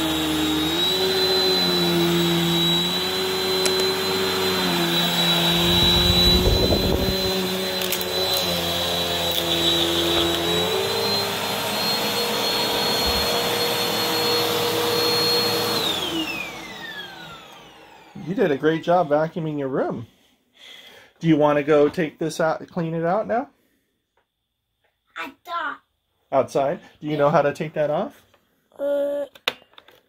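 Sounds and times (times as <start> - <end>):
vacuum cleaner running on carpet: 0.0 - 19.1.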